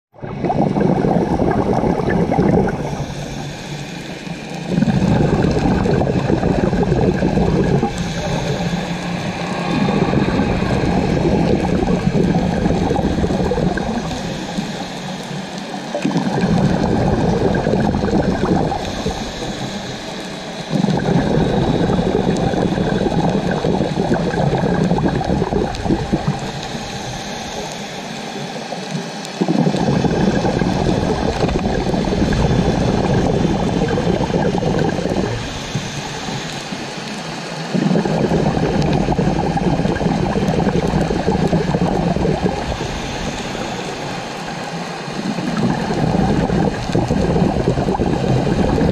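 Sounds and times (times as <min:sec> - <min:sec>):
bubbling regulator exhalations: 0:00.1 - 0:48.9
hissing regulator inhalations: 0:00.9 - 0:28.8.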